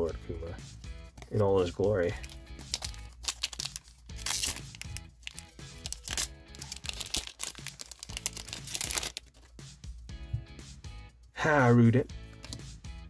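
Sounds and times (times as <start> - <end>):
background music: 0.0 - 13.0
foil wrapper tearing and crinkling: 2.2 - 9.5.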